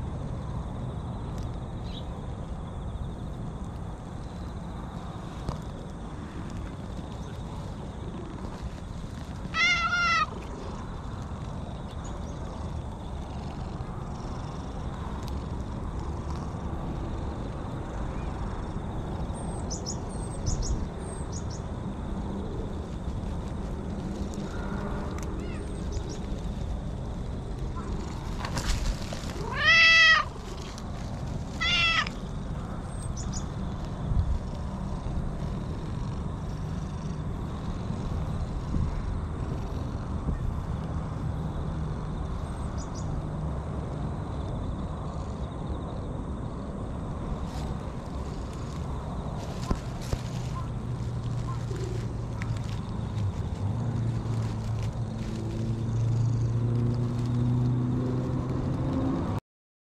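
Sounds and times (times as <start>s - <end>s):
cat meowing: 9.5s - 10.4s, 25.4s - 25.8s, 29.4s - 30.4s, 31.6s - 32.2s.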